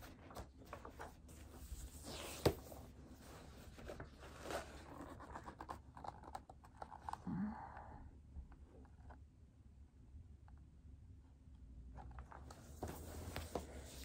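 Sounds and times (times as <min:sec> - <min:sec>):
book rustling and scraping: 0:00.0 - 0:07.1, 0:12.0 - 0:14.0.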